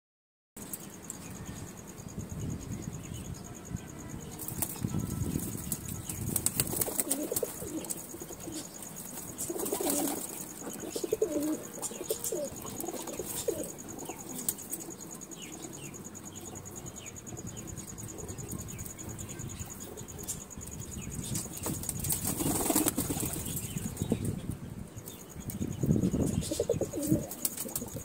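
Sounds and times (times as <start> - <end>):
wing flaps: 4.4 - 8.0, 21.3 - 23.8
pigeons cooing: 6.5 - 16.7, 25.9 - 28.0.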